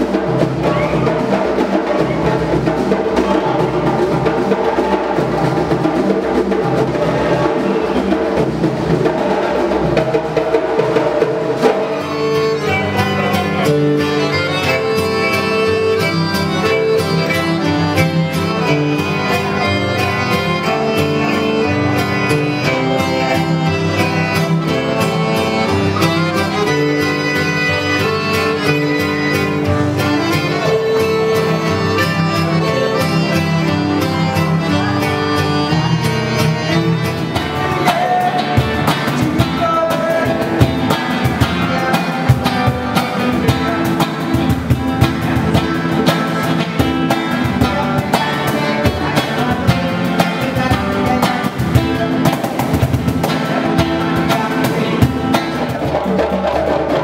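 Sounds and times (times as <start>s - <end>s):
accordion: 0.0s - 57.0s
acoustic guitar: 0.0s - 57.0s
hand drum strokes: 0.0s - 57.0s
violin: 10.9s - 56.2s.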